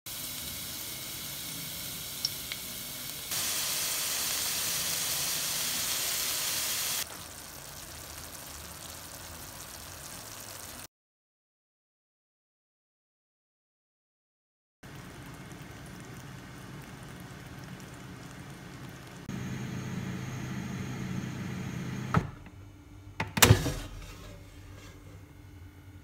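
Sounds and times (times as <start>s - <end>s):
food sizzling in a pan: 0.1s - 10.9s, 14.8s - 21.8s.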